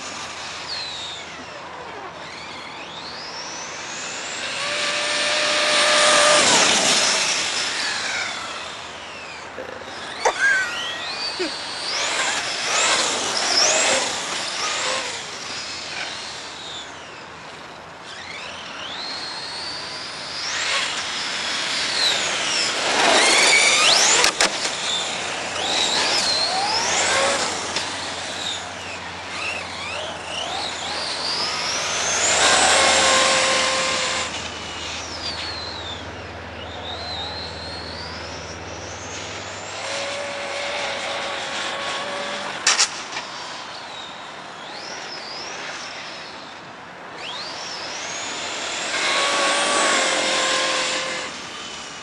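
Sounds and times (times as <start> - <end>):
electric motor whining: 0.0 - 52.0
sharp click: 42.6 - 43.3.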